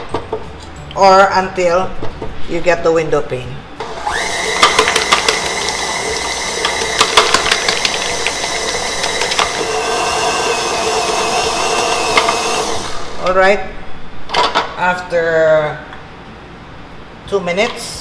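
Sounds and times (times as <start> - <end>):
stand mixer motor whine: 3.8 - 13.2.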